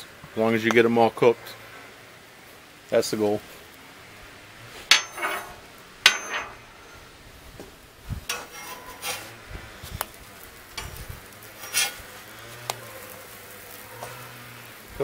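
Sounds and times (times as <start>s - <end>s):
metal spatula scraping griddle: 4.7s - 7.1s, 8.2s - 14.9s.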